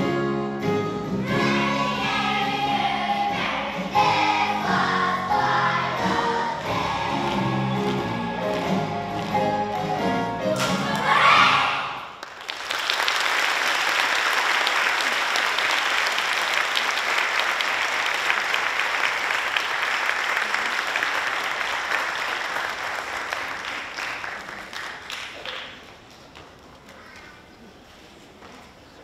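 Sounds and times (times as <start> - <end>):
children's choir singing: 1.2 - 12.0
audience applause: 12.1 - 26.1.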